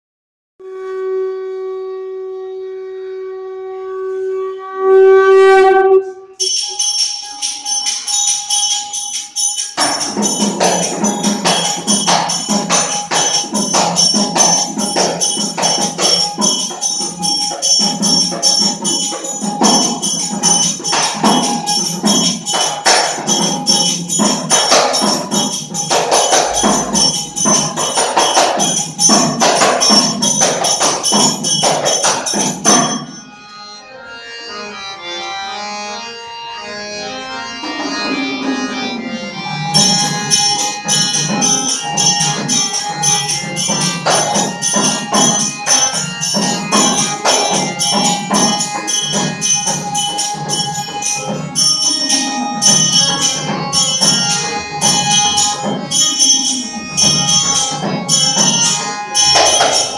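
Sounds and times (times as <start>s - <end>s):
wind instrument note: 0.6s - 8.3s, 32.8s - 59.9s
jingling percussion: 6.3s - 59.9s
barrel drum and hand drums: 9.6s - 33.2s, 39.7s - 59.9s.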